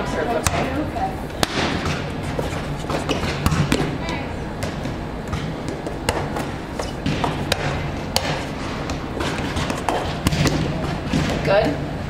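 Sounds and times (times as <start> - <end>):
volleyballs smacking and bouncing: 0.0 - 11.9.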